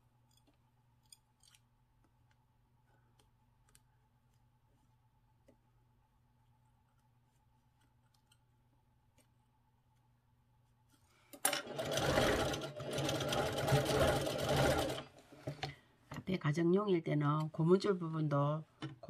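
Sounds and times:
sewing machine stitching: 0:11.5 - 0:15.1.

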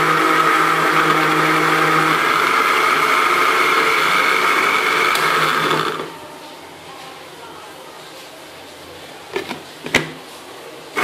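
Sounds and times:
blender motor whining: 0:00.0 - 0:06.1.

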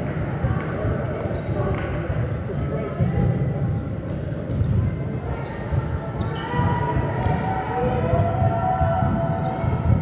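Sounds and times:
volleyballs hit and bouncing: 0:00.0 - 0:10.0
sneaker squeaks: 0:01.2 - 0:01.7, 0:04.0 - 0:07.4, 0:09.4 - 0:10.0.

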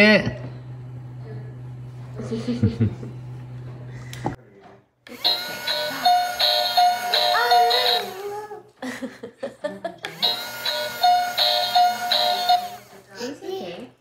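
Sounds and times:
toy electronic tune: 0:05.1 - 0:08.2, 0:10.1 - 0:13.0.

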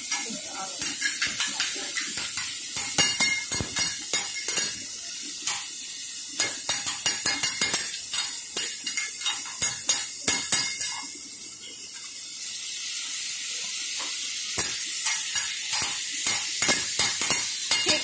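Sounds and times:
metal spatulas clacking and scraping: 0:00.0 - 0:04.8, 0:05.4 - 0:05.7, 0:06.4 - 0:11.1, 0:14.6 - 0:18.0
food sizzling on a griddle: 0:00.0 - 0:18.0.

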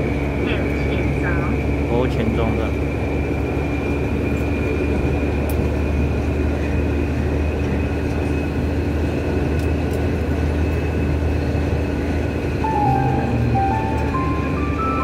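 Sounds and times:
train wheels rumbling on track: 0:00.0 - 0:15.0
high-pitched whine: 0:12.4 - 0:15.0.

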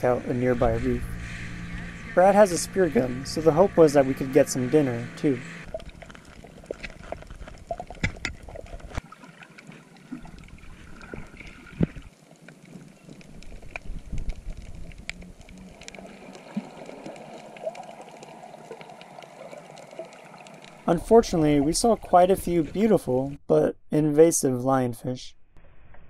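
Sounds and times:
sharp underwater clicks and crackles: 0:05.6 - 0:21.0.

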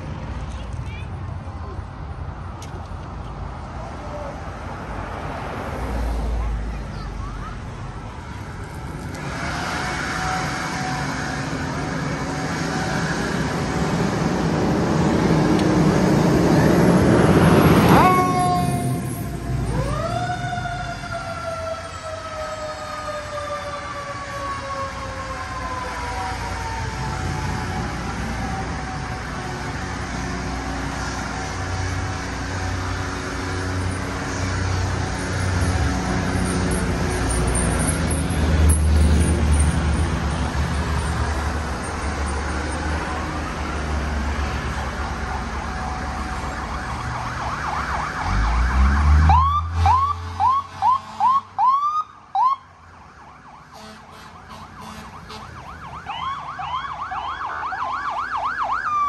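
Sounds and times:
siren wailing: 0:16.4 - 0:29.9, 0:45.2 - 0:59.0
short rising siren whoops: 0:17.8 - 0:27.0.

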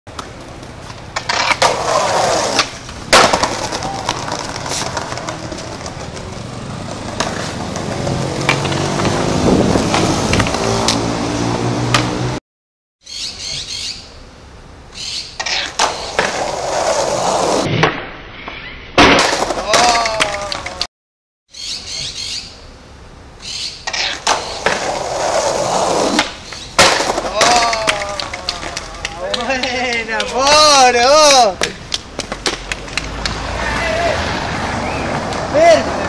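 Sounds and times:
skateboard clacks: 0:00.1 - 0:09.2, 0:19.1 - 0:20.9, 0:26.0 - 0:30.7, 0:31.4 - 0:33.4
skateboard wheels rolling on concrete: 0:00.1 - 0:12.4, 0:14.4 - 0:20.9, 0:22.7 - 0:36.0.

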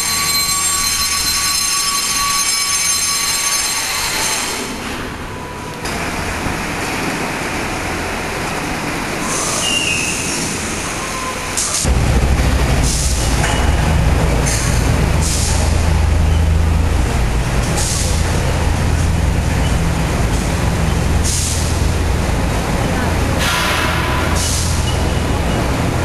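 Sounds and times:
heavy machinery low drone: 0:00.0 - 0:26.0.

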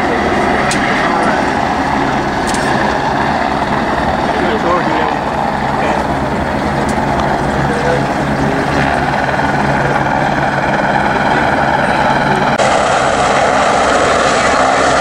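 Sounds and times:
boat engine drone: 0:00.0 - 0:15.0
helicopter engine and rotor drone: 0:00.0 - 0:15.0
wind: 0:00.0 - 0:15.0
rushing water: 0:08.4 - 0:15.0.

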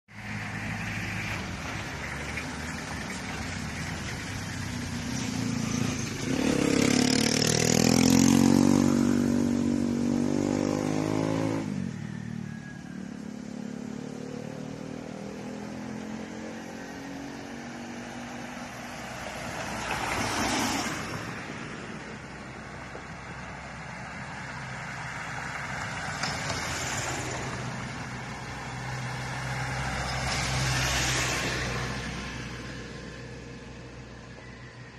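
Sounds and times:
vehicle engine accelerating: 0:00.1 - 0:12.6
vehicles passing by: 0:00.1 - 0:34.9.

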